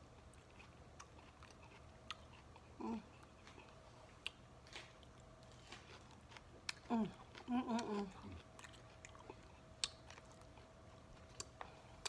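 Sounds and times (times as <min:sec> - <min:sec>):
person chewing: 0:00.2 - 0:12.0
person humming: 0:06.8 - 0:08.4.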